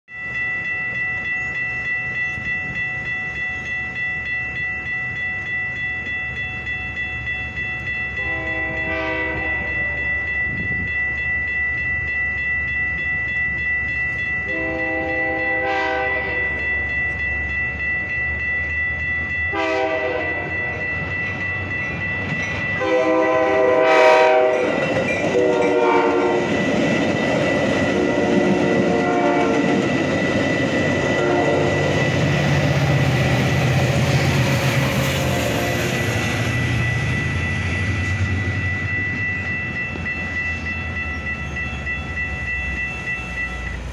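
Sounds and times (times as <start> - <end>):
railroad crossing bell ringing: 0.1 - 43.9
train wheels rushing on rails: 0.2 - 43.9
train horn blasts: 8.2 - 10.0, 14.5 - 16.6, 19.5 - 20.8, 22.8 - 26.5, 28.0 - 29.8, 31.0 - 31.9.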